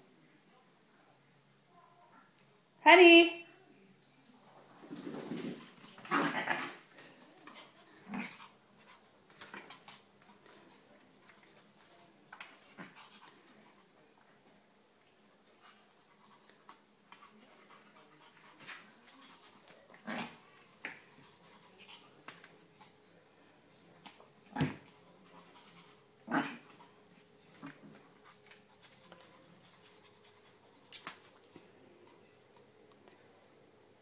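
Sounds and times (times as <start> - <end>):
dogs panting and scuffling: 4.6 - 14.6, 15.4 - 23.0, 24.0 - 32.8
light clicks on tile floor: 30.8 - 31.6.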